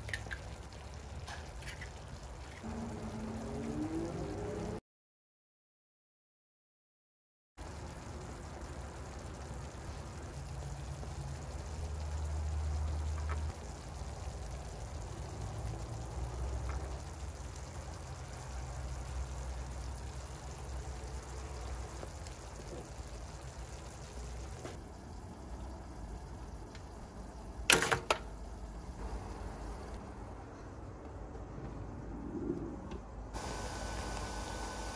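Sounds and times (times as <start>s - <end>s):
sauce simmering in a frying pan: 0.0s - 4.8s, 7.6s - 27.7s, 28.4s - 30.0s.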